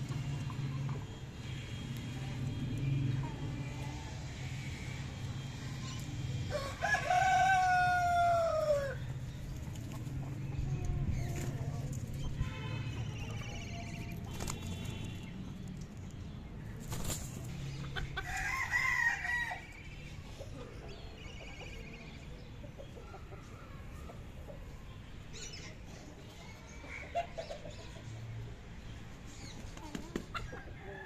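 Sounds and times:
rooster crowing: 6.5s - 9.0s, 18.2s - 19.6s.

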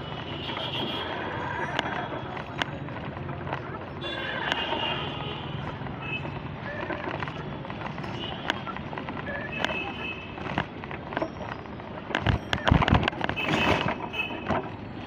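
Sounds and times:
street traffic noise: 0.0s - 15.0s
clicks: 5.6s - 15.0s.

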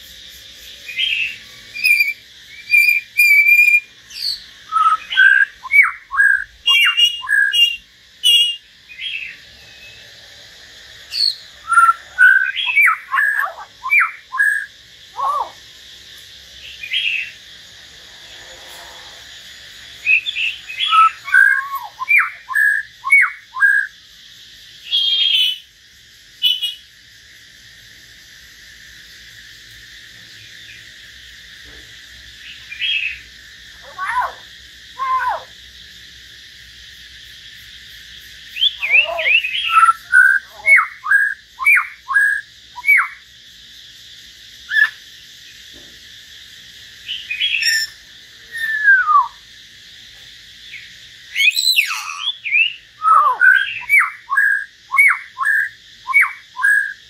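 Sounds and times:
steady hiss: 0.0s - 13.3s, 14.1s - 21.9s, 22.5s - 40.1s, 42.2s - 53.0s
birds singing whistled phrases: 0.8s - 10.1s, 11.0s - 15.6s, 16.6s - 17.4s, 20.0s - 24.0s, 24.8s - 25.7s, 26.4s - 26.8s, 32.5s - 35.5s, 38.5s - 43.2s, 44.6s - 45.0s, 47.0s - 49.5s, 50.7s - 57.0s.

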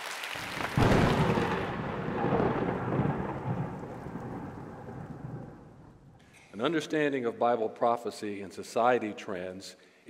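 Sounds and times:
rain falling: 0.0s - 6.2s
thunder clap and rumble: 0.5s - 6.2s.

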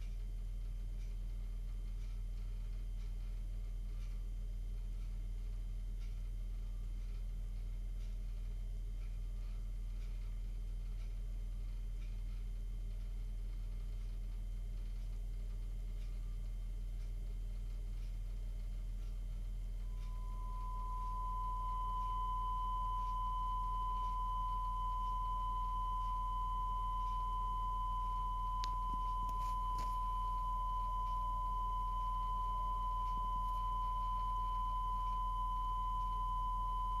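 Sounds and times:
low steady hum: 0.0s - 37.0s
broadcast test tone: 19.8s - 37.0s.

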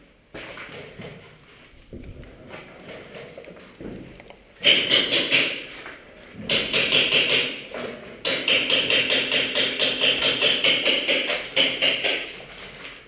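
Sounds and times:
airsoft gun automatic bursts: 4.6s - 5.7s, 6.5s - 7.7s.

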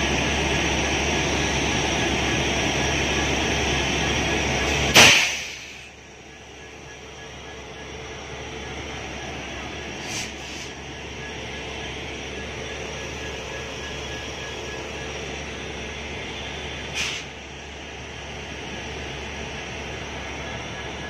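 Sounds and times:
electric locomotive humming: 0.0s - 21.0s
air hissing: 10.0s - 10.8s, 16.8s - 17.4s.

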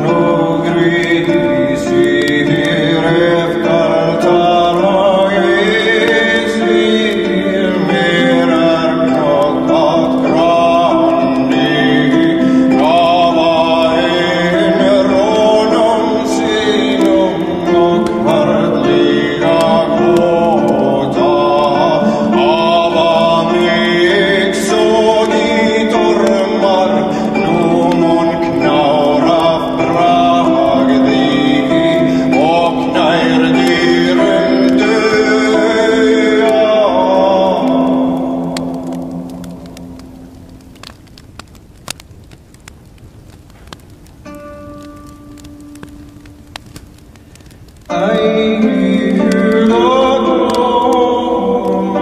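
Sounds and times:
slow chant-like singing: 0.0s - 40.3s, 47.4s - 52.0s.

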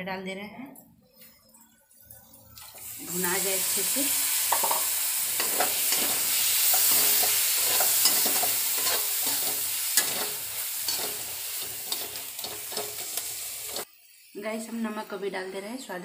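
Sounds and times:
tomatoes sizzling in hot oil: 1.9s - 16.0s
metal spoon scraping pan: 4.5s - 13.9s.

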